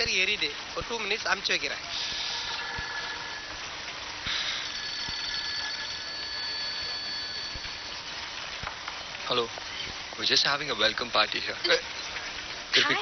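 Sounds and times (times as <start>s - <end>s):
mobile phone ringing: 4.3s - 8.1s.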